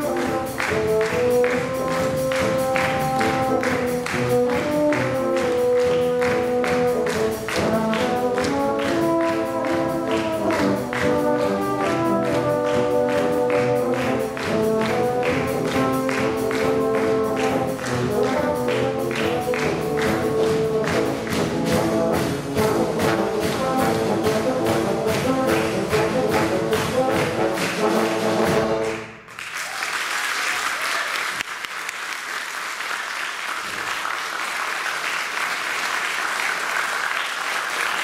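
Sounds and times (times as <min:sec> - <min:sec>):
audience applause: 0:00.0 - 0:21.6, 0:25.1 - 0:38.0
drum kit beat: 0:00.0 - 0:29.0
low brass quartet playing: 0:00.0 - 0:29.2.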